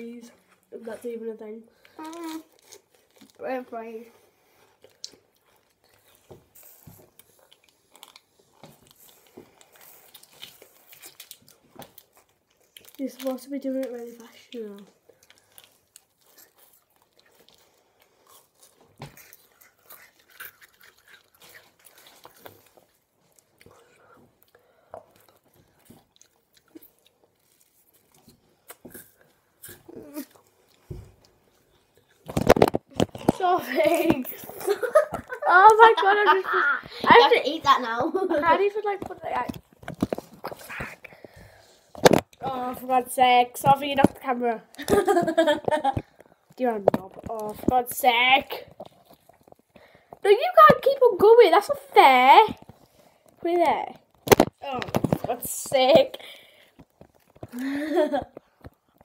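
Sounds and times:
crunching and chewing ice: 0:04.7 - 0:34.1, 0:48.5 - 0:50.2, 0:52.5 - 0:55.3, 0:56.5 - 0:57.6
plastic tubes clicking and rustling: 0:32.2 - 0:35.9, 0:38.9 - 0:43.0, 0:52.4 - 0:59.0.

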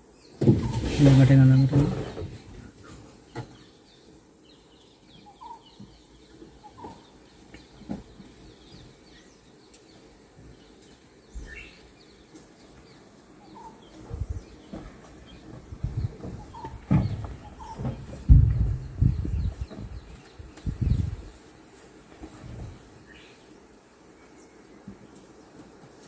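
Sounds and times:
birds chirping: 0:00.0 - 0:26.0
rising bird calls: 0:05.1 - 0:07.2, 0:13.4 - 0:21.1.

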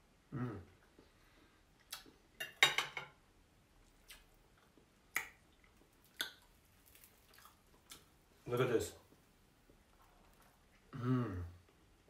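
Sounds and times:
person chewing: 0:00.7 - 0:02.4, 0:03.8 - 0:08.2.

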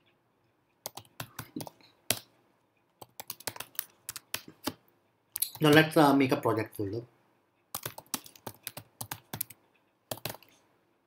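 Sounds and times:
typing on computer keyboard: 0:00.8 - 0:02.3, 0:03.0 - 0:04.8, 0:07.7 - 0:10.5.

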